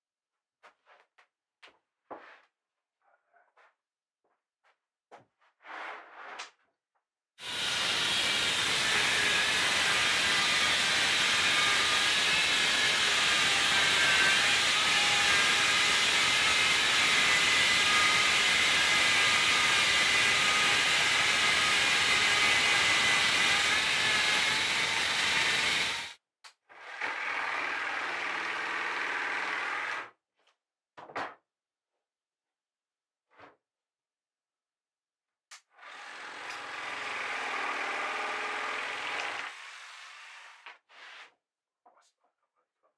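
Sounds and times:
power tool motor whine: 10.2s - 26.2s.

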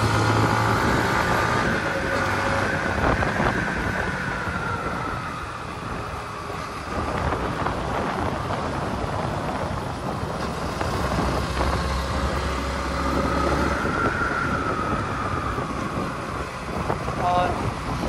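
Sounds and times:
wind noise: 0.0s - 18.0s.

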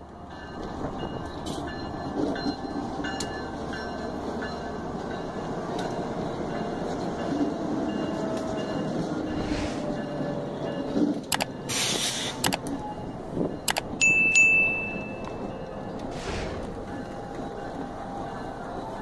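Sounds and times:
diesel locomotives rumbling: 0.0s - 19.0s
bell ding: 14.0s - 15.7s.

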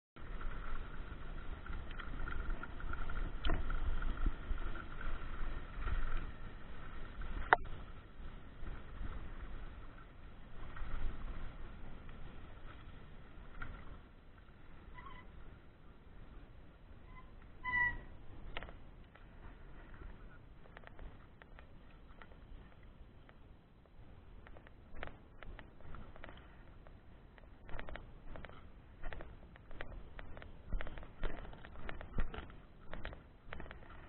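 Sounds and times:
bike clicks and knocks: 0.2s - 8.0s, 17.4s - 23.5s, 24.4s - 34.0s
tyre noise on dirt: 0.2s - 34.0s
wind rumbling on microphone: 0.2s - 34.0s.

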